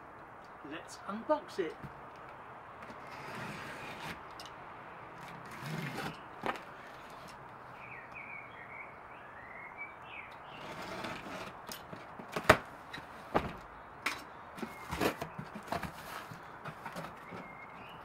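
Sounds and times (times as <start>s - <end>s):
cardboard box scraping and tearing: 3.0s - 4.2s, 5.2s - 6.6s, 10.5s - 12.6s, 14.6s - 17.6s
faint bird chirping: 6.1s - 10.8s, 13.7s - 15.7s, 16.3s - 18.0s.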